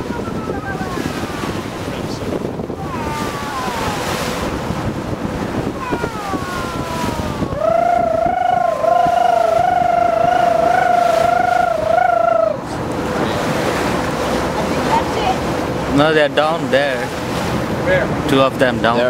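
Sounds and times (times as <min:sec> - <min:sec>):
water rushing past ship's bow: 0:00.0 - 0:19.0
wind: 0:00.0 - 0:19.0
wavering tone: 0:05.8 - 0:12.7.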